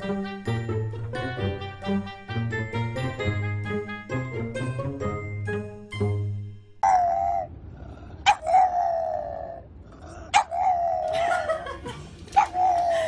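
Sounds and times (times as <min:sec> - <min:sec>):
dog yipping: 0:06.8 - 0:07.5, 0:08.3 - 0:09.6, 0:10.3 - 0:11.2, 0:12.4 - 0:13.0
dog howling: 0:06.8 - 0:07.6, 0:08.3 - 0:09.7, 0:10.4 - 0:11.2.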